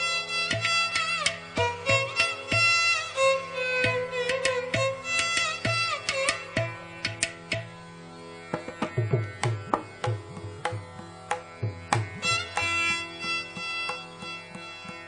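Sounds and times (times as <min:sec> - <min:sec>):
violin melody: 0:00.0 - 0:07.7, 0:08.4 - 0:15.0
drum strokes: 0:03.8 - 0:07.8, 0:08.5 - 0:15.0.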